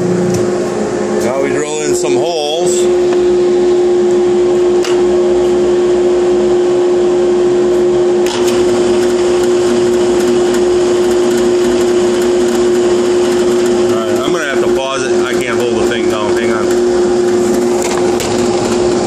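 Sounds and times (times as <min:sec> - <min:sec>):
dust collection vacuum: 0:00.0 - 0:19.0
drill press boring wood: 0:08.2 - 0:19.0.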